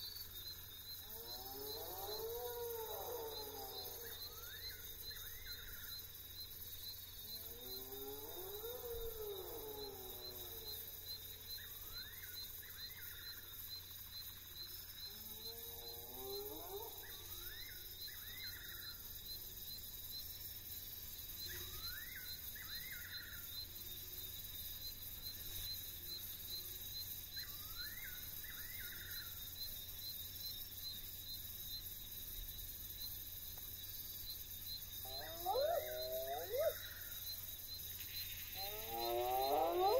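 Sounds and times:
high-pitched insect drone: 0.0 - 39.9
hyena whooping: 35.0 - 36.8, 38.6 - 39.9
nightjar calling: 35.0 - 37.2.

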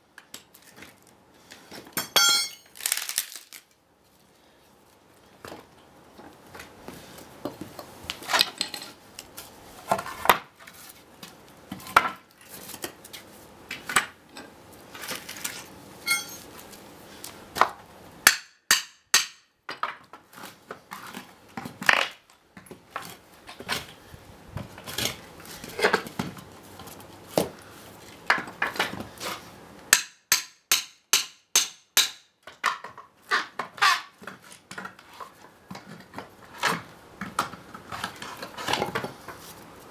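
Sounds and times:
wooden blocks clattering: 2.2 - 3.6
hammer striking wooden boards: 18.2 - 19.5, 29.9 - 32.3.

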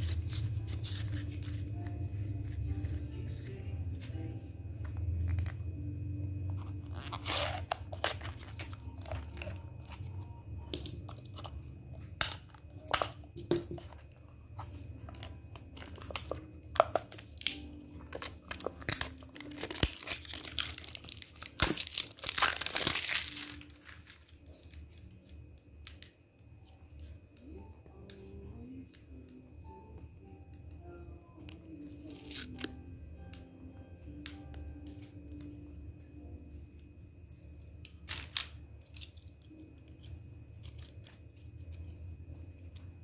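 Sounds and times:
plastic wrapping crinkling and tearing: 0.0 - 3.6, 6.5 - 26.0, 31.7 - 32.8, 37.3 - 42.0.

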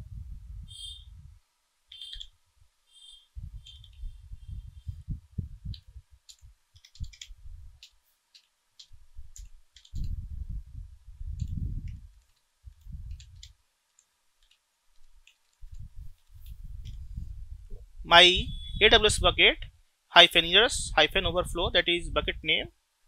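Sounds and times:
low muffled rumbling bumps: 3.4 - 6.6, 10.0 - 12.1
keyboard keys clicking: 5.7 - 10.1, 13.1 - 17.0.

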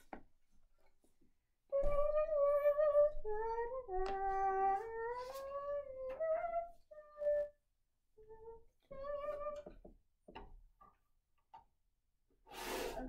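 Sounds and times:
girl humming a tune: 1.7 - 7.6.

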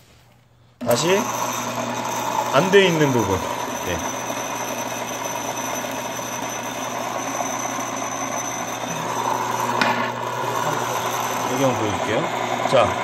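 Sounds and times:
electric motor humming: 0.8 - 13.0.

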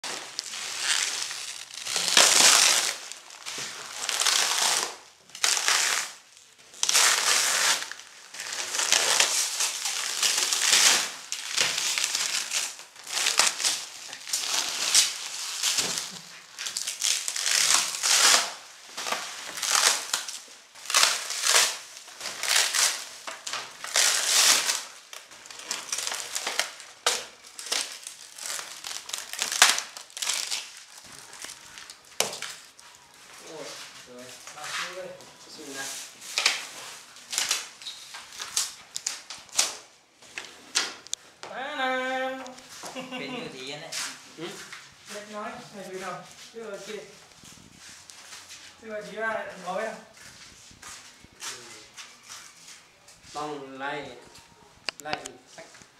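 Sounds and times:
plastic film crinkling: 0.0 - 41.2.

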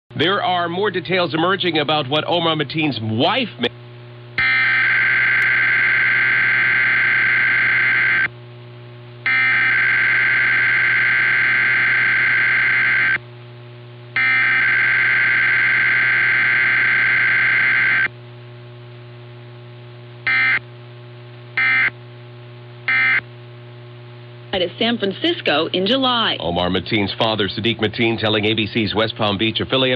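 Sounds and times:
raspy data bursts over radio: 14.2 - 18.1.

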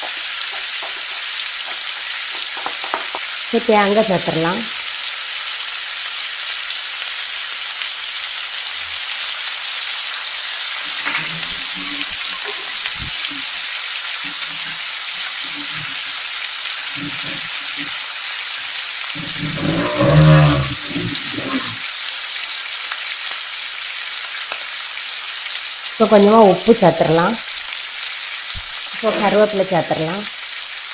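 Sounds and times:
food sizzling in a pan: 0.0 - 30.9
background voice: 17.0 - 17.9, 19.2 - 21.8, 29.0 - 30.2.

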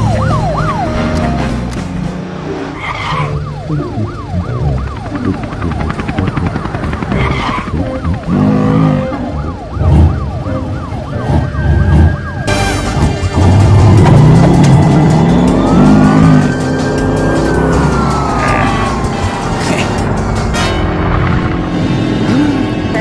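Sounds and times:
cartoon siren wailing: 0.0 - 1.4, 2.8 - 12.8, 14.6 - 20.2
low sound effects: 11.2 - 22.9.

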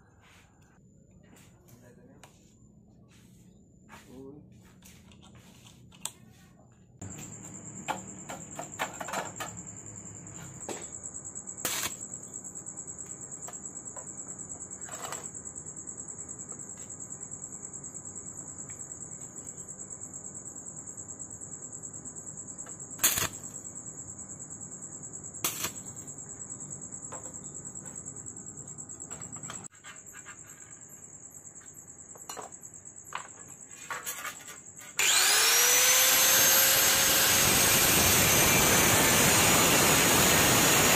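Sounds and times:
angle grinder whine: 7.0 - 10.9, 23.0 - 23.3, 34.9 - 40.9.

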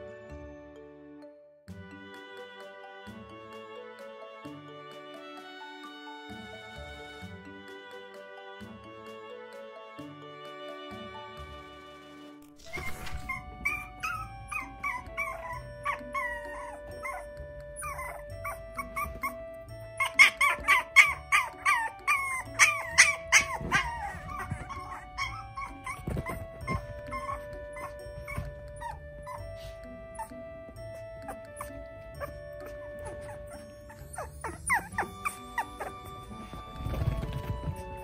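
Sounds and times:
background music with held notes: 0.0 - 38.0
puppies whining and yipping: 12.6 - 38.0.

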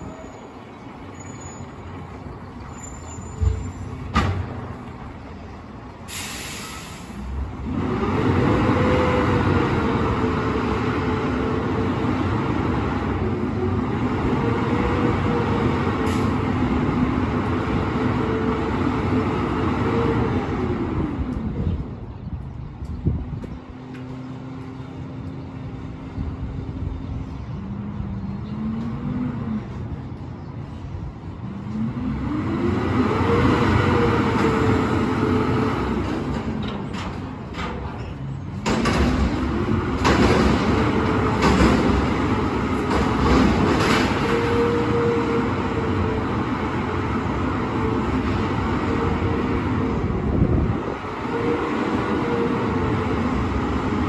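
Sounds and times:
garbage truck diesel engine revving: 6.1 - 21.3, 31.8 - 36.6.

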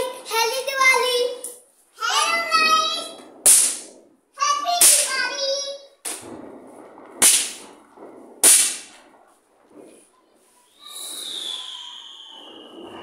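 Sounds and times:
snap-pop fireworks cracking: 1.4 - 13.0
hiss with falling whistle: 10.5 - 13.0.

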